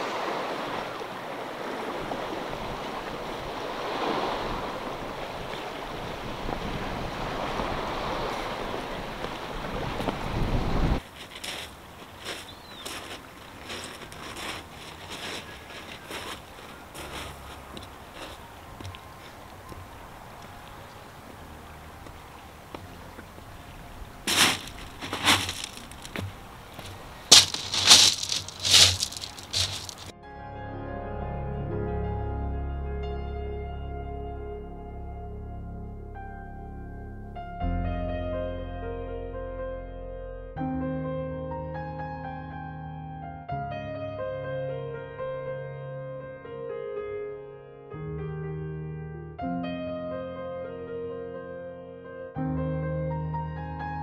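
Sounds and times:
wind buffeting microphone: 0:01.7 - 0:11.1
footsteps crunching on pebbles: 0:11.0 - 0:19.4, 0:24.3 - 0:30.1.

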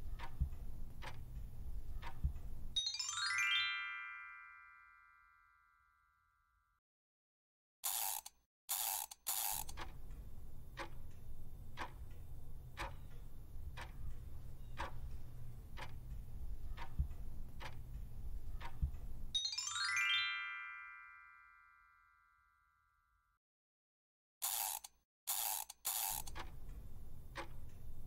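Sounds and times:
clock ticking: 0:00.0 - 0:02.8, 0:08.8 - 0:19.4, 0:25.4 - 0:28.0
low pulsing bed: 0:00.0 - 0:02.8
bright rising chime: 0:02.8 - 0:05.8, 0:19.4 - 0:22.4.

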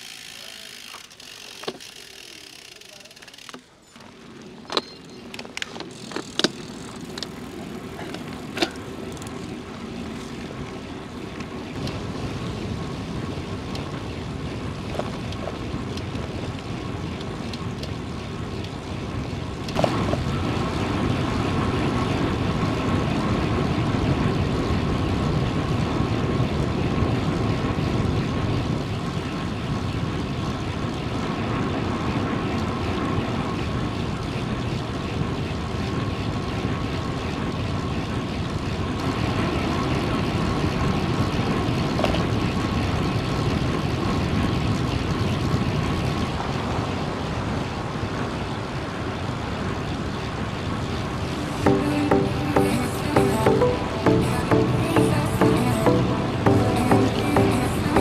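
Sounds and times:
bicycle wind and road noise: 0:00.0 - 0:52.1
sharp clicks and knocks: 0:04.7 - 0:07.3.

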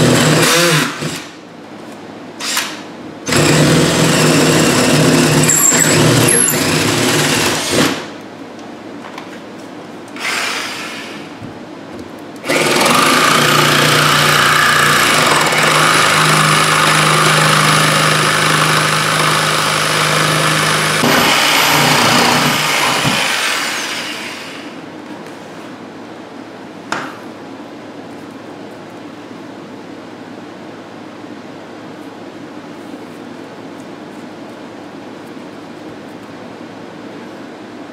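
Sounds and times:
jigsaw cutting wood: 0:00.0 - 0:01.3, 0:03.3 - 0:08.1, 0:10.2 - 0:11.2, 0:12.4 - 0:24.7.

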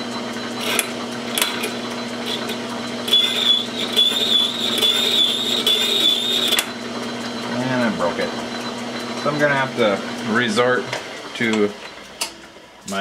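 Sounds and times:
metal lathe humming: 0:00.0 - 0:12.9
high wavering squeal of tool bit: 0:00.6 - 0:06.8.

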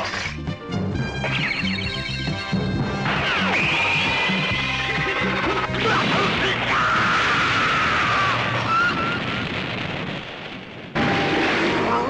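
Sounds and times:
explosion: 0:05.4 - 0:12.0.

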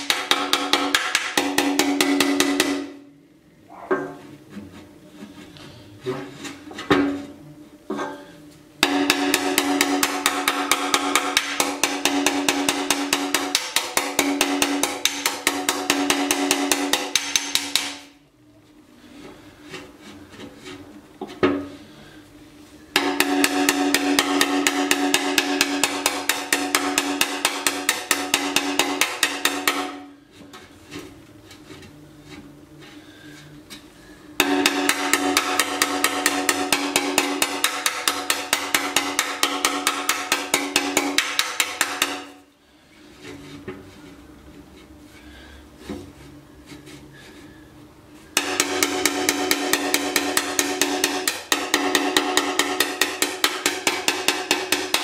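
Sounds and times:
hammer striking ringing metal tank: 0:00.0 - 0:03.1, 0:08.8 - 0:18.1, 0:22.9 - 0:30.1, 0:34.4 - 0:42.4, 0:48.4 - 0:55.0.

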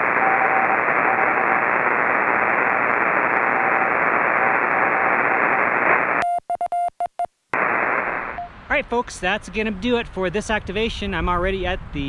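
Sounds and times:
faint morse code signal: 0:00.0 - 0:01.7, 0:03.0 - 0:05.6, 0:06.2 - 0:07.3
radio band noise hiss: 0:00.0 - 0:06.2, 0:07.6 - 0:08.8.

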